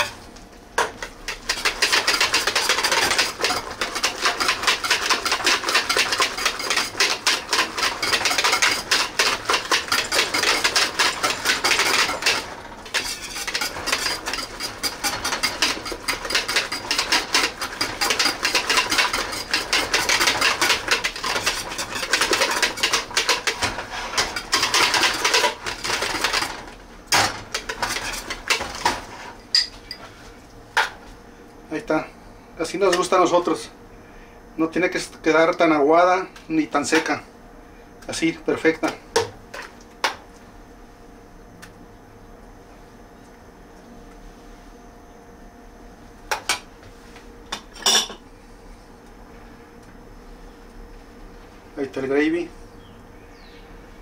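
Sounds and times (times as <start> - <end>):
metal whisk clattering in pot: 1.3 - 29.7.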